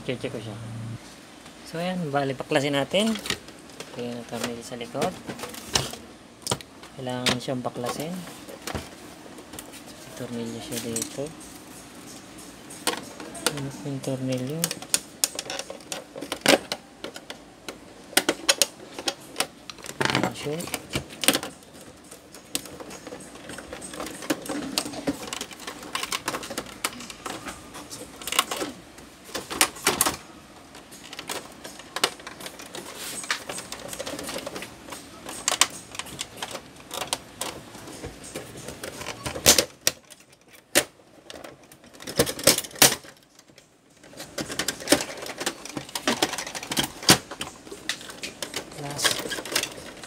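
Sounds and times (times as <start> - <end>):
plastic printer casing clicking and rattling: 12.8 - 50.0.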